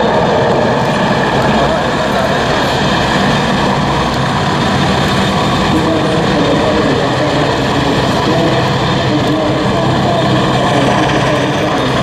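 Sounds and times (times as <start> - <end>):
helicopter flying low: 0.0 - 12.0.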